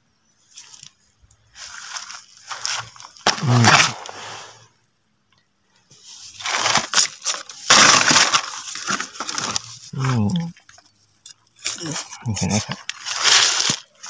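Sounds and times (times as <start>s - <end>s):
dry leaves crunching and rustling: 1.5s - 4.4s, 6.1s - 10.5s, 11.7s - 14.0s.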